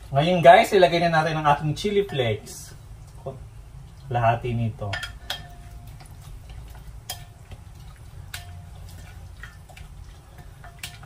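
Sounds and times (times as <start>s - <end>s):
steady low hum: 0.0s - 11.0s
spatula clinking against bowl: 4.9s - 6.1s, 7.1s - 7.6s
spatula stirring wet sauce: 5.1s - 11.0s.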